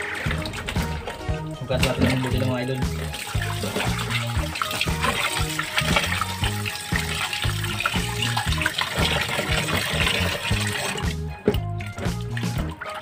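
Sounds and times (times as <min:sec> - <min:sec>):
meat rinsed by hand splashing: 0:00.0 - 0:13.0
tap running into basin: 0:00.0 - 0:13.0
music with steady bass beat: 0:00.2 - 0:13.0.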